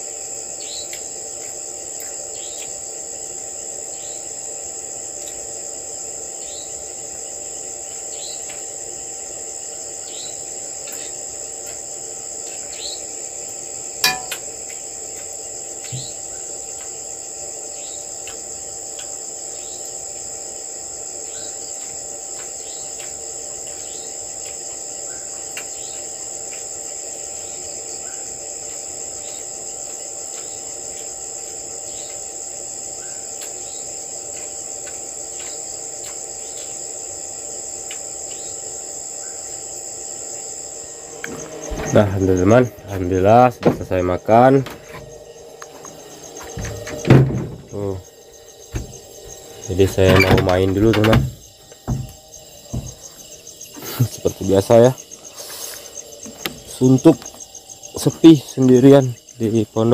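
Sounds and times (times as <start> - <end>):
crickets and insects chorus: 0.0 - 59.9
sharp knock: 14.0 - 14.4
falling chirps: 38.3 - 58.0.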